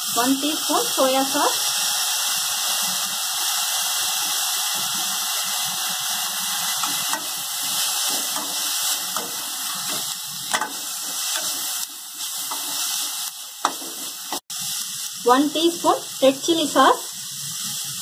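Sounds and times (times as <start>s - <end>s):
vegetables sizzling in a pan: 0.0s - 18.0s
metal spoon scraping a pan: 6.5s - 14.4s.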